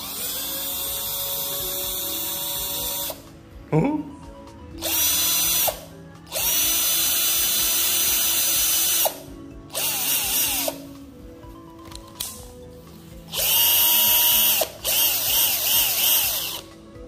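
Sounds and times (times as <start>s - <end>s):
cordless drill spinning: 0.0s - 3.3s, 4.8s - 10.9s, 13.3s - 16.7s.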